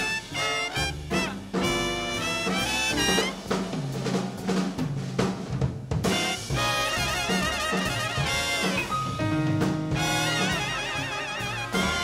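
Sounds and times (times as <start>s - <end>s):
big band playing swing: 0.0s - 12.0s.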